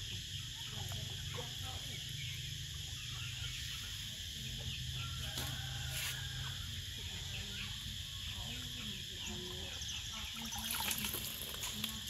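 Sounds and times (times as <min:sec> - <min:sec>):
water sloshing in a plastic tub: 0:10.2 - 0:12.0
water splashes: 0:10.4 - 0:11.9.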